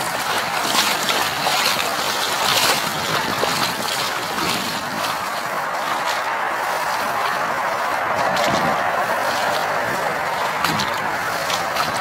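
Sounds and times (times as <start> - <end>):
boots splashing through water: 0.0 - 12.0.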